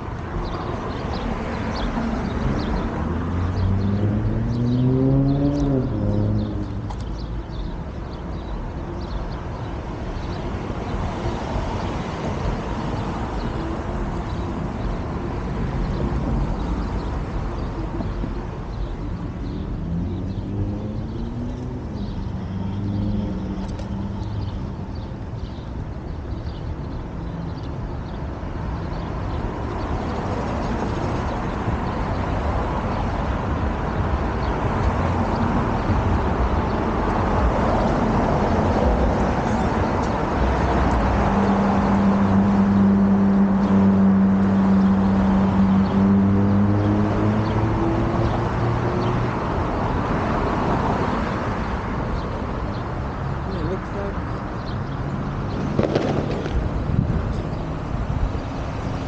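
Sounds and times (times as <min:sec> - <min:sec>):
passing cars rumble: 0:00.0 - 0:59.0
vehicle approaching: 0:01.5 - 0:07.7, 0:18.9 - 0:25.0.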